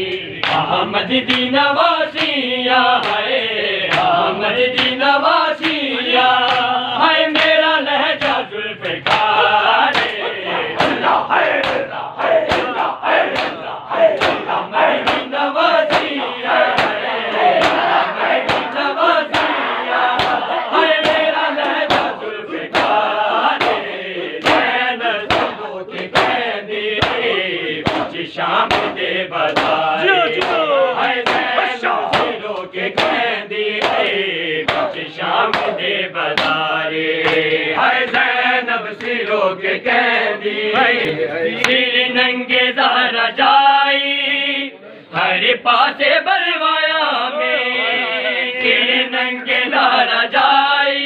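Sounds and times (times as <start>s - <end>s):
men chanting in unison: 0.0s - 51.0s
hands slapping bare chests: 0.4s - 0.7s, 2.2s - 2.4s, 3.0s - 3.3s, 3.9s - 5.0s, 5.6s - 5.8s, 6.4s - 26.4s, 27.0s - 38.3s, 38.9s - 39.4s.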